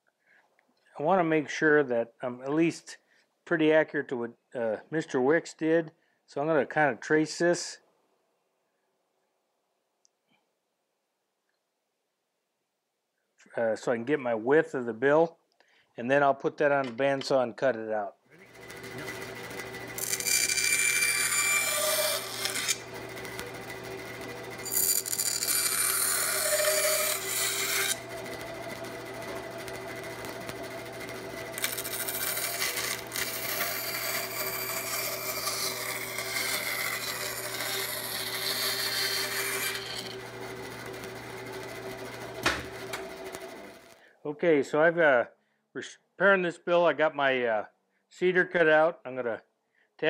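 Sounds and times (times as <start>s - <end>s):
bandsaw blade cutting wood: 18.4s - 44.0s
bandsaw motor hum: 18.4s - 44.0s.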